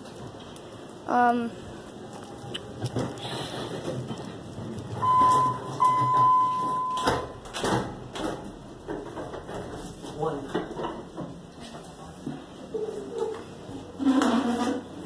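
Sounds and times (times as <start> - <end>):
elevator doors sliding: 2.8 - 9.9
elevator beep: 5.0 - 7.4.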